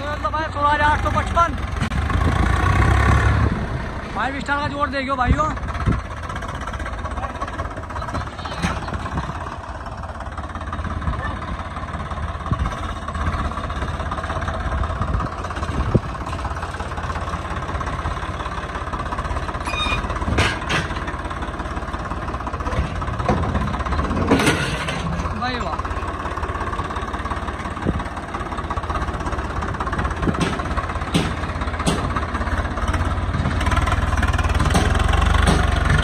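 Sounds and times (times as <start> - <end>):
tractor diesel engine running: 0.0 - 36.0
sharp knocks: 30.2 - 32.2, 34.6 - 35.9.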